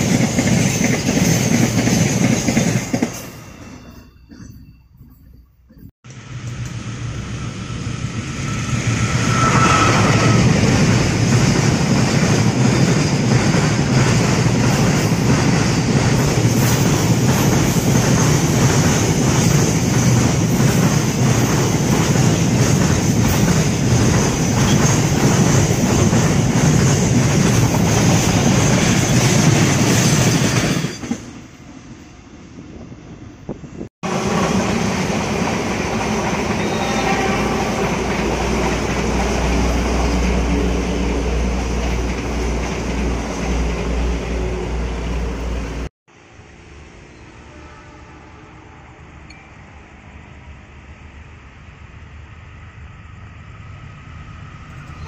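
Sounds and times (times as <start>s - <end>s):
train wheels clacking on rails: 0.0s - 6.8s, 8.4s - 31.4s, 34.0s - 44.1s.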